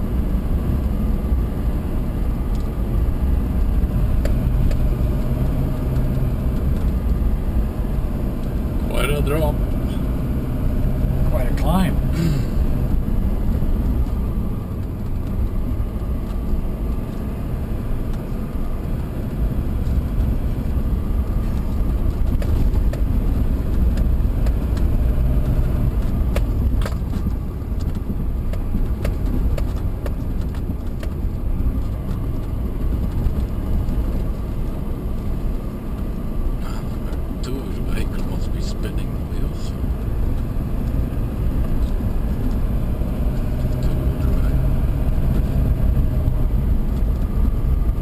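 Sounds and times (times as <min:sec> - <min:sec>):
vehicle engine rumble: 0:00.0 - 0:48.0
sharp clicks and knocks: 0:21.5 - 0:36.1.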